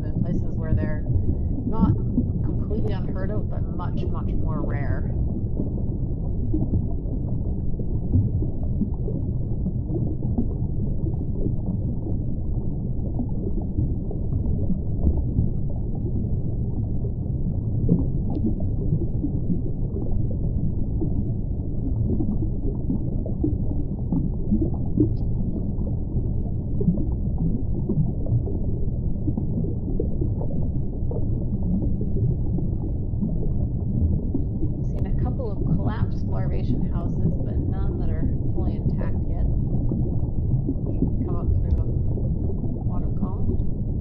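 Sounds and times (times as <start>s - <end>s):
faint underwater crackles: 0.0s - 44.0s
underwater low rumble: 0.0s - 44.0s.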